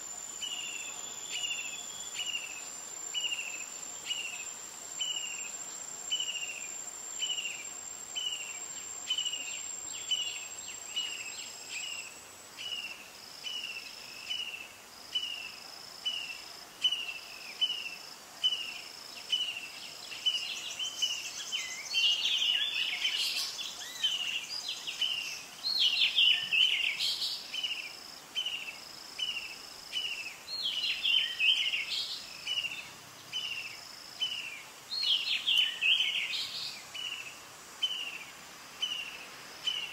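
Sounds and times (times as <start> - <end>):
insect chirp: 0.0 - 39.9
bird calls: 16.1 - 39.9.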